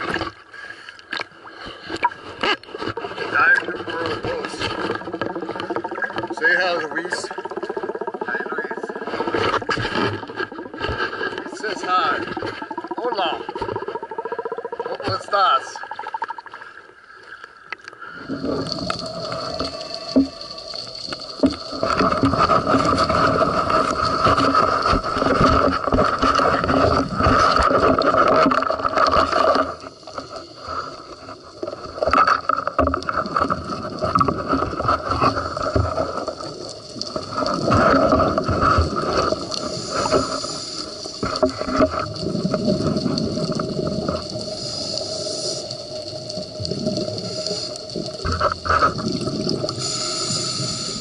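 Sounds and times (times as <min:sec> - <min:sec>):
bubbles gurgling: 0:01.2 - 0:16.8, 0:18.1 - 0:51.0
scuba regulator breathing underwater: 0:16.4 - 0:27.8, 0:36.4 - 0:51.0.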